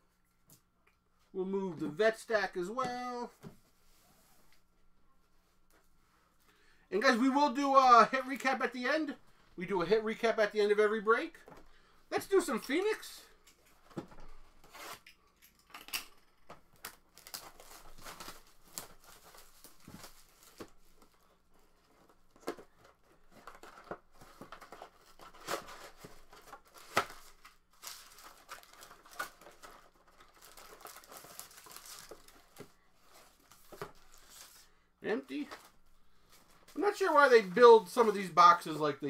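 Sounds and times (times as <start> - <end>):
cardboard tearing and crinkling: 16.8 - 20.7, 22.8 - 32.6.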